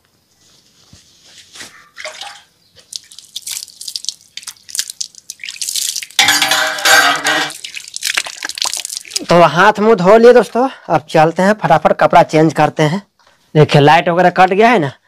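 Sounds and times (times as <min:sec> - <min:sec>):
water splashing onto paved floor: 0:02.0 - 0:09.4
metal ladle clinking against pot: 0:06.2 - 0:07.7.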